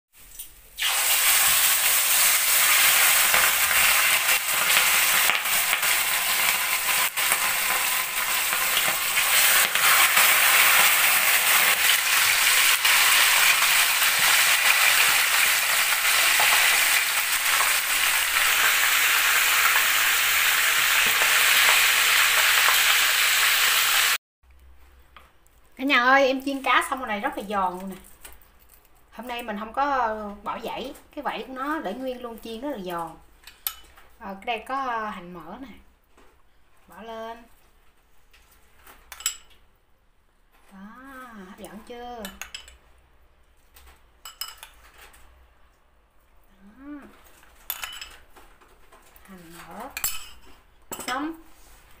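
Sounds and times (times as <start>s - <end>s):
fish sizzling in hot oil: 0.2s - 24.2s.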